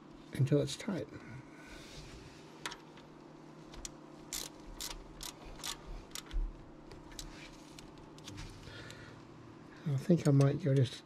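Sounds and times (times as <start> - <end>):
ratchet clicking: 4.3 - 6.4.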